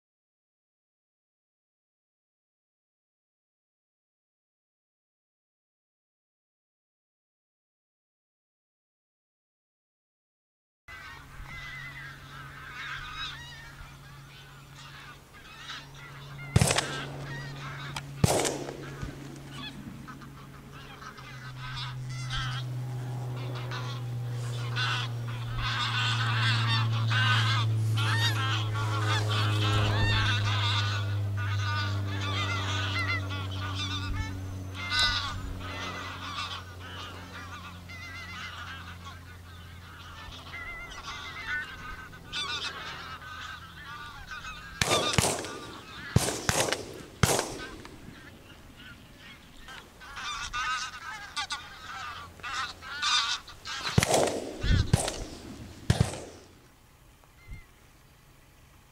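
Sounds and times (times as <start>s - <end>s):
geese honking: 10.9s - 56.6s
low hum: 11.0s - 58.9s
shotgun shots: 16.5s - 19.8s, 44.8s - 48.3s, 53.8s - 56.6s.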